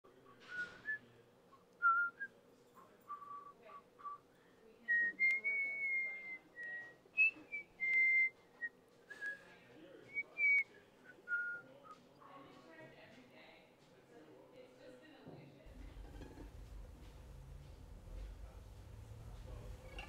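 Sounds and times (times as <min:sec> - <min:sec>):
person whistling a slow tune: 0:03.1 - 0:04.2, 0:04.9 - 0:09.4, 0:10.1 - 0:11.6.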